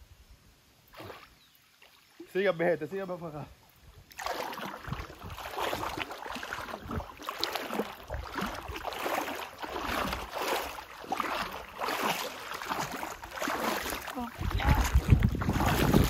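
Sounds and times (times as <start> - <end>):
water splashing from swimming: 0.9 - 2.3, 4.1 - 16.0
wind on microphone: 4.7 - 6.0, 6.6 - 7.2, 8.0 - 8.9, 14.2 - 16.0.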